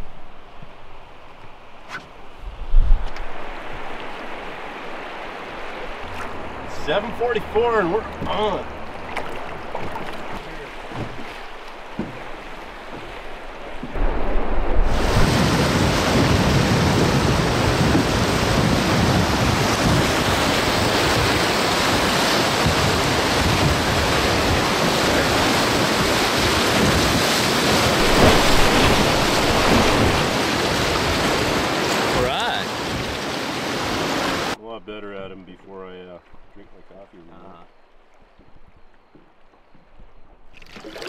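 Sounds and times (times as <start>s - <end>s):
wind buffeting microphone: 12.8s - 32.1s
river rapids rushing: 14.9s - 34.6s.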